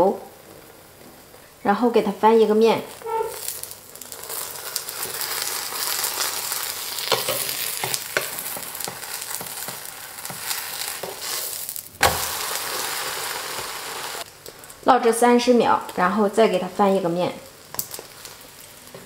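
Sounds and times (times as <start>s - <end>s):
pancake sizzling in oil: 2.8s - 14.8s, 17.3s - 19.0s
spatula scraping griddle: 3.0s - 14.2s.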